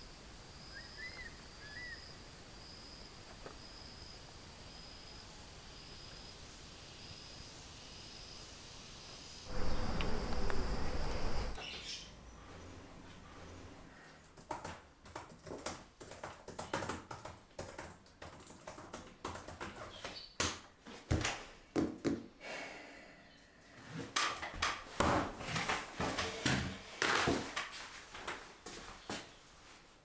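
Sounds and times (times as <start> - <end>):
typing on laptop keyboard: 14.2 - 20.2.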